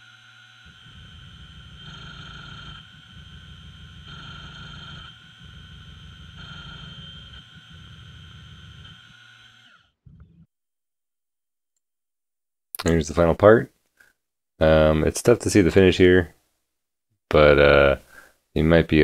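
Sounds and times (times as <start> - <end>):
milling machine spindle whining: 0.0 - 10.5.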